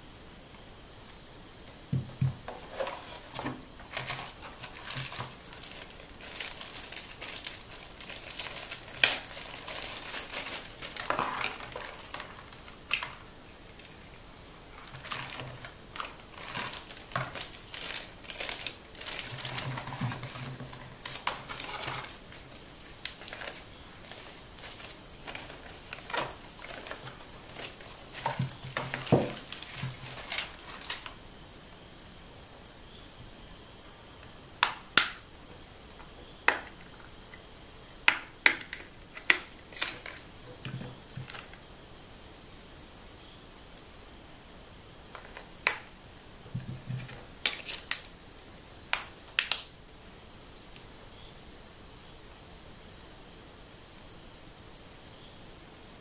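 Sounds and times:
paper leaflet rustling: 2.5s - 13.2s, 14.8s - 31.2s
plastic clicks and snaps: 48.9s - 49.9s.

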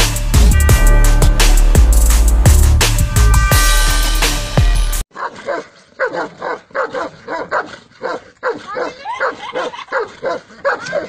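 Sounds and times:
large dogs barking: 5.1s - 11.0s.

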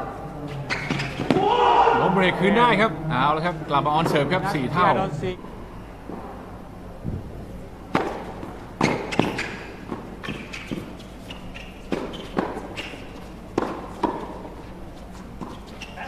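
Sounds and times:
tennis ball struck by rackets: 7.9s - 10.9s, 11.5s - 14.4s
tennis ball bouncing on hard court: 7.9s - 14.5s.

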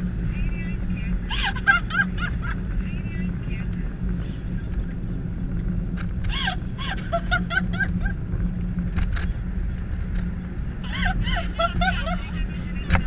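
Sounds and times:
car road and engine rumble: 0.0s - 13.0s
high-pitched laughter: 1.3s - 2.6s, 6.3s - 8.2s, 10.9s - 12.4s.

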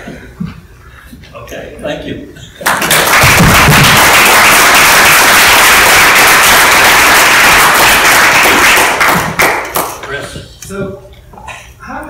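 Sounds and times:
audience applauding: 2.6s - 10.2s.

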